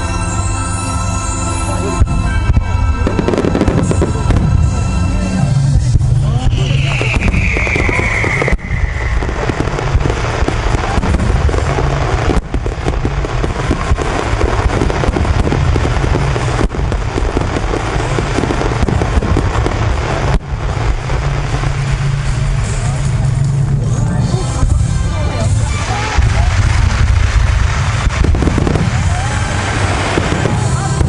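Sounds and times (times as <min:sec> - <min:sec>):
fireworks crackling and booming: 0:00.0 - 0:31.0
falling firework whistle: 0:02.0 - 0:20.4, 0:25.6 - 0:31.0.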